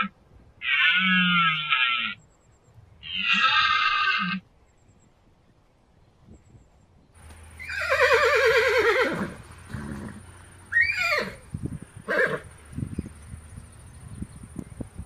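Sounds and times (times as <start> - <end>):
animal calling: 3.0 - 4.4, 7.6 - 12.5.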